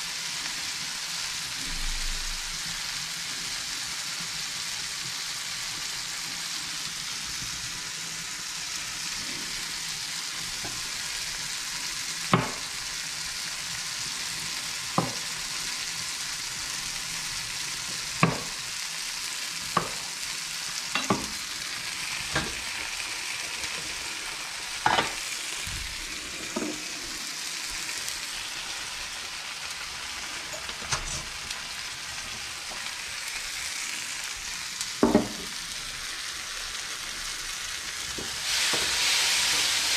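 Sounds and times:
vegetables sizzling in a frying pan: 0.0 - 39.9
knife knocking on cutting board: 35.0 - 35.5.

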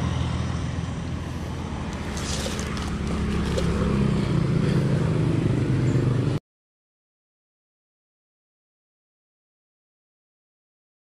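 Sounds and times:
vehicle engine running: 0.0 - 6.4.

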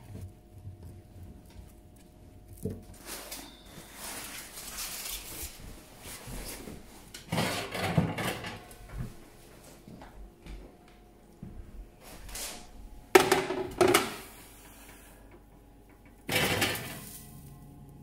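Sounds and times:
rustling: 0.9 - 7.1
kitchen clatter: 7.2 - 8.7, 13.2 - 14.3, 16.0 - 17.4.

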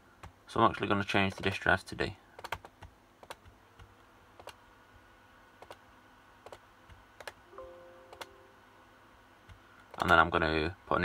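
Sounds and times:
low room hiss: 0.0 - 11.0
computer mouse clicks: 2.4 - 4.6, 5.6 - 5.8, 6.4 - 7.4, 8.1 - 8.4, 9.4 - 10.2.

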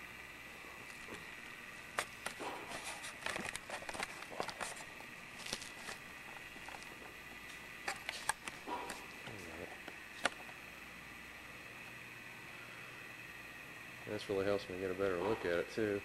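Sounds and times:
camera handling clicks and rustles: 1.9 - 6.9, 7.5 - 9.0, 10.2 - 10.6.

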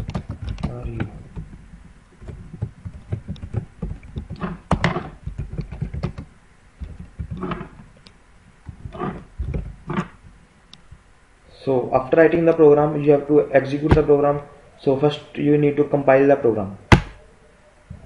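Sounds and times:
computer keyboard typing: 0.0 - 1.5, 2.2 - 7.7.

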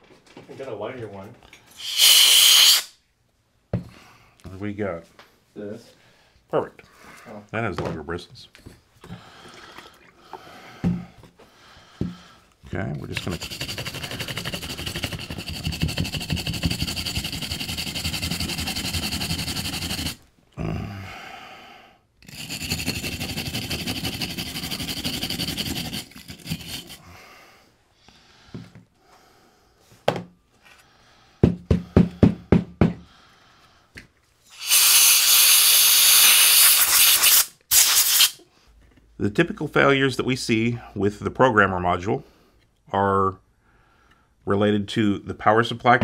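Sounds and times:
loud steady hiss: 1.8 - 3.0, 34.5 - 38.4
brush scrubbing: 13.1 - 20.2, 22.3 - 27.0.

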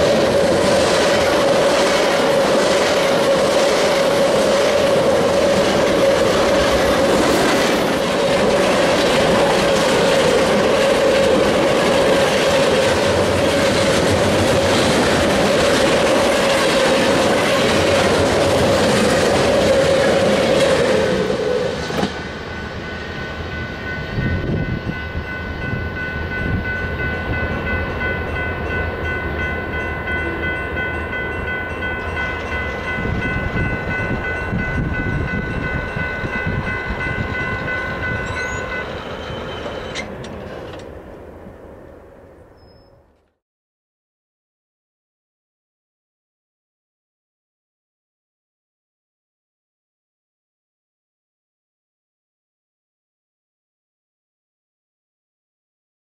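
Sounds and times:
train wheels clattering on rails: 0.0 - 22.7
crossing bell ringing: 22.0 - 42.8.

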